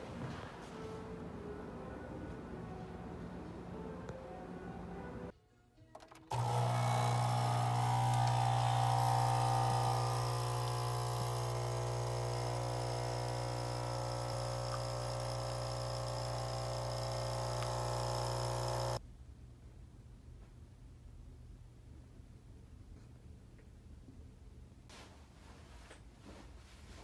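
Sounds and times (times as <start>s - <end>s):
espresso machine pump humming: 6.2s - 19.0s.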